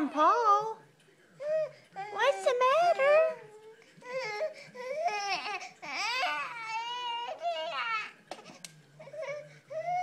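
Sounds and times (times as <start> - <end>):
infant crying: 1.4 - 8.2.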